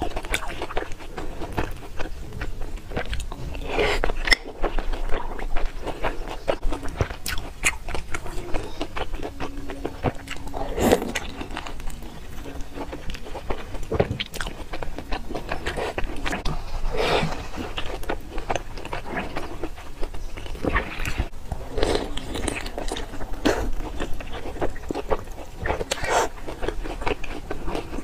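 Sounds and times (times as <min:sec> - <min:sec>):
wet chewing and mouth clicks: 0:00.0 - 0:28.0.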